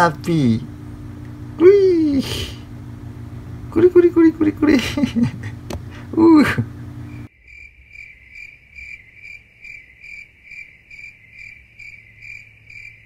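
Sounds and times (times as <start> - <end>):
insect chirping trill: 7.1 - 13.0.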